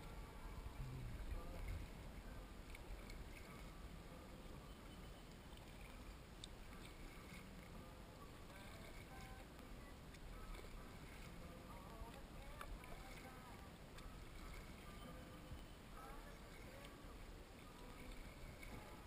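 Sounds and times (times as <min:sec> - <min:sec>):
steady low rumble: 0:00.0 - 0:04.7
paddle dipping and dripping: 0:00.0 - 0:19.0.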